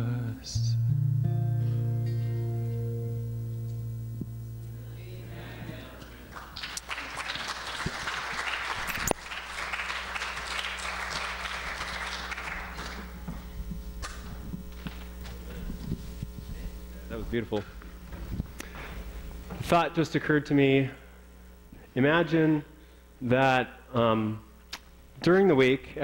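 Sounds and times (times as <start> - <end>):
acoustic guitar chord ringing: 0.0 - 5.6
guitar lead pop: 0.0 - 6.1
low electrical hum: 0.0 - 26.0
congregation applauding: 6.0 - 13.3.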